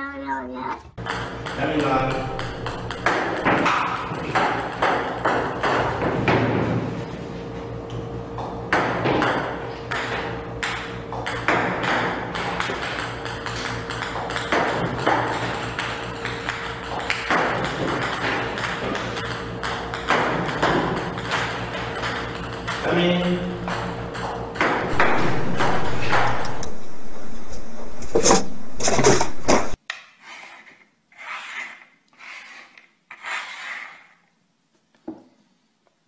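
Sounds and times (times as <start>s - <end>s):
ping-pong balls bouncing on table: 1.0s - 6.6s, 8.4s - 26.6s.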